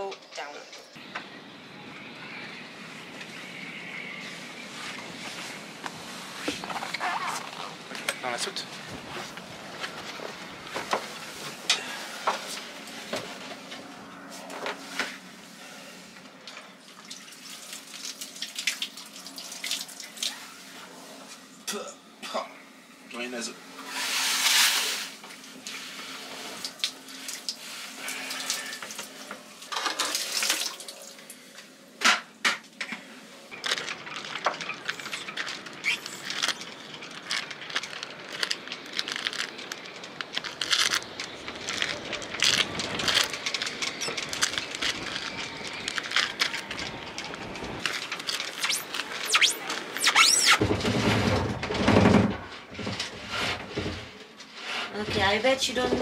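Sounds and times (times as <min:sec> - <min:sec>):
water pouring and splashing on metal: 0:16.8 - 0:20.5, 0:24.0 - 0:31.4
knocks and clatter: 0:50.5 - 0:54.1.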